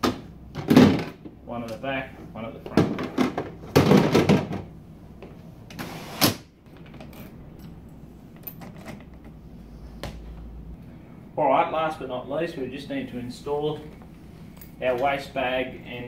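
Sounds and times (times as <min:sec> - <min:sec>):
plastic buckets knocking and rattling: 0:00.0 - 0:01.4, 0:02.6 - 0:04.8.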